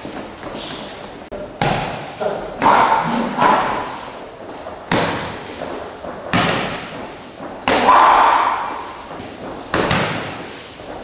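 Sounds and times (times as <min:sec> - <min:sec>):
gloved punches and kicks landing: 0:01.6 - 0:03.8, 0:04.9 - 0:05.5, 0:06.3 - 0:10.5.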